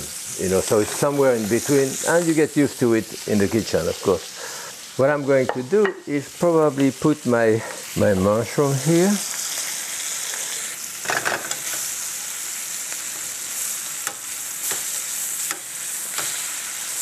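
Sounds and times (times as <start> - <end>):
steaks sizzling in a skillet: 0.0 - 17.0
tongs clicking against a pan: 14.0 - 16.4.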